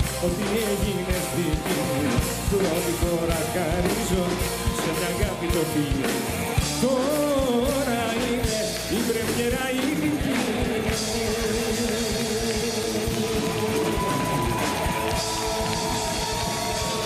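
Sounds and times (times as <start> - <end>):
rock music with drum beat: 0.0 - 17.0.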